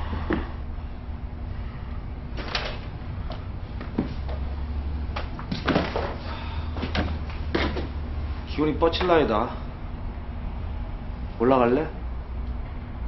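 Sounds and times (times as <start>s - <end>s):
steady low hum: 0.0s - 13.0s
knocks and thuds: 5.2s - 6.2s, 6.8s - 7.9s.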